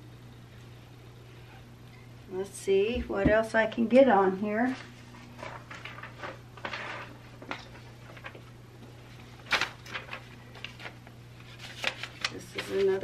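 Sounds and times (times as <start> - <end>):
steady low hum: 0.0 - 13.0
paper and fabric rustling: 4.5 - 13.0.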